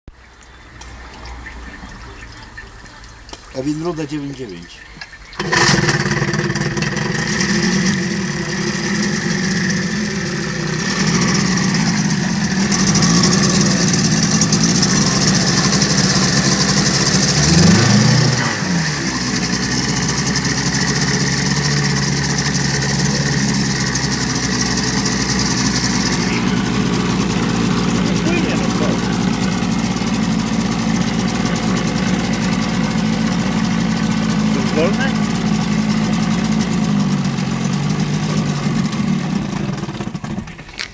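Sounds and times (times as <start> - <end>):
outboard motor running: 5.3 - 40.9.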